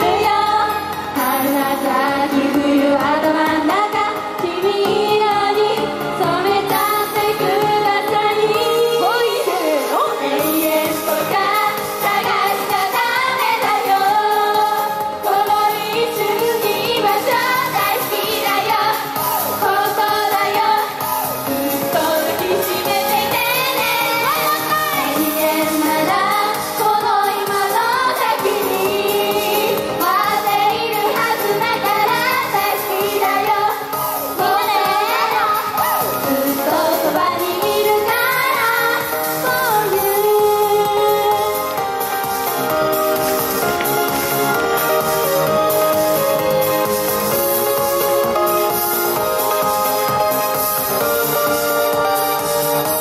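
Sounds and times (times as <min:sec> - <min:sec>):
women singing pop song: 0:00.0 - 0:53.0
band accompaniment: 0:09.8 - 0:53.0.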